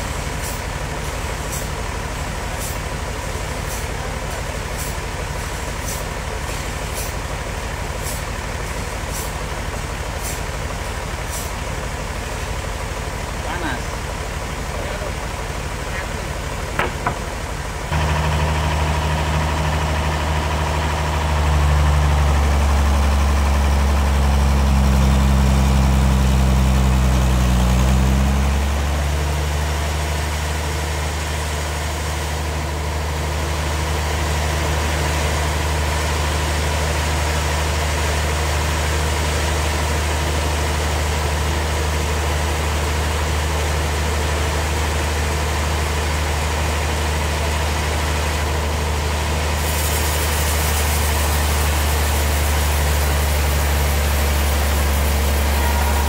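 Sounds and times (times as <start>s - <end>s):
stationary engine running: 10.8s - 41.0s, 44.5s - 56.0s.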